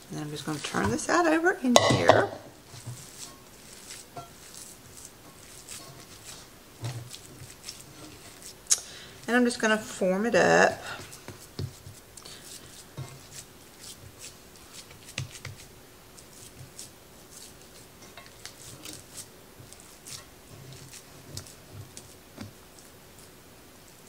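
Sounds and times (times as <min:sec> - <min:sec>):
hands squishing raw meat: 0:02.6 - 0:09.3.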